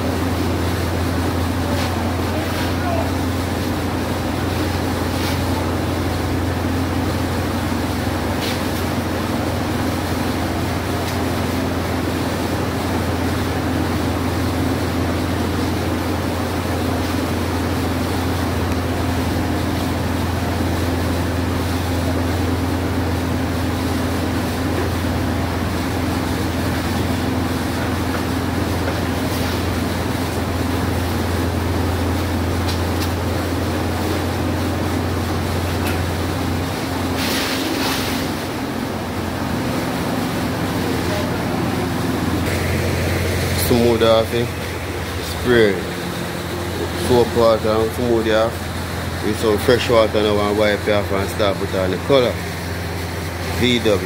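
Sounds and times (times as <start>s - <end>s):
motor humming: 38.2s - 50.5s.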